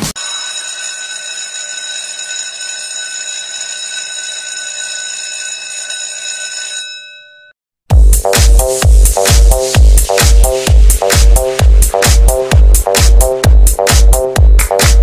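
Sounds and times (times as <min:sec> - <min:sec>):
electric bell ringing: 0:00.2 - 0:07.6
dance-pop music: 0:07.9 - 0:15.0.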